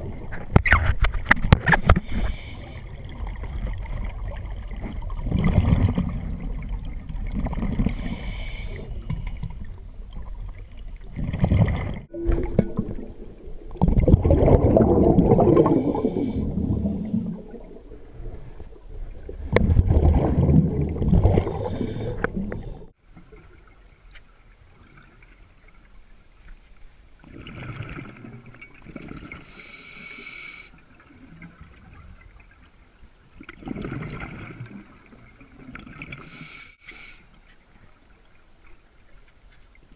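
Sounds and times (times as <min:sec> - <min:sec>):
regulator inhalation hiss: 0:02.0 - 0:02.8, 0:07.9 - 0:09.0, 0:29.4 - 0:30.7, 0:36.2 - 0:37.3
diver exhaling bubbles: 0:11.1 - 0:22.9.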